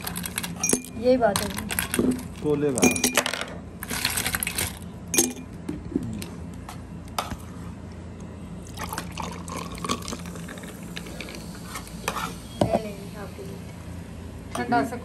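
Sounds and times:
cola pouring and fizzing: 8.6s - 11.7s.

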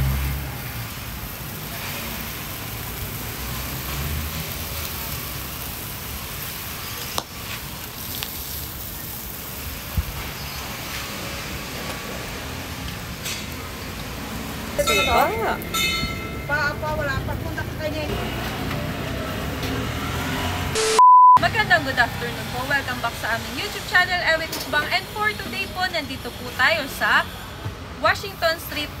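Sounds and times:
meat sizzling on charcoal grill: 0.0s - 20.6s.

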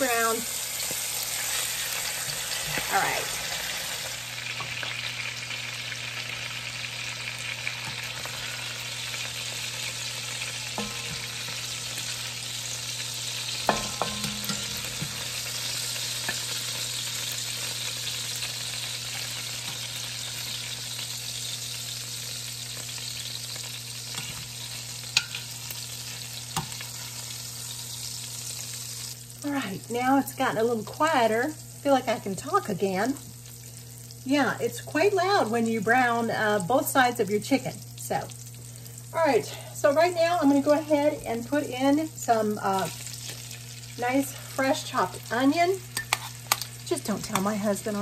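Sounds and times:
chicken sizzling in oil: 0.0s - 48.0s
metal tongs clicking on pot: 13.7s - 15.1s, 46.0s - 46.7s.

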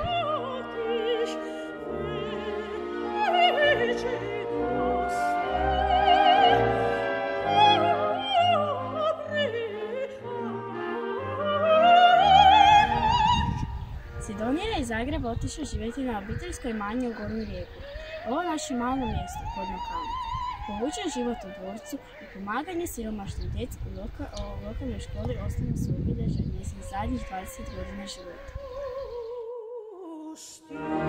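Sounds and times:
orchestral accompaniment: 0.0s - 16.7s, 30.7s - 31.0s
operatic singing: 0.0s - 25.1s, 26.7s - 31.0s.

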